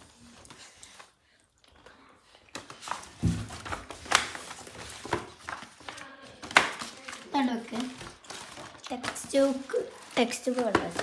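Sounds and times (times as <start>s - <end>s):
book covers sliding and rustling: 2.5s - 11.0s
books set down with thumps and slaps: 2.6s - 7.0s.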